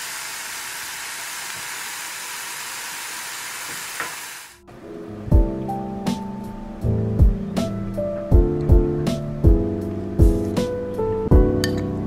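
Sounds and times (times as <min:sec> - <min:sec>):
chicken sizzling in oil: 0:00.0 - 0:04.6.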